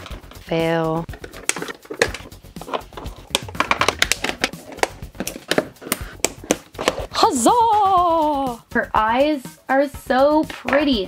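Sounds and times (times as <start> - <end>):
plastic packaging crackling: 1.1 - 7.1.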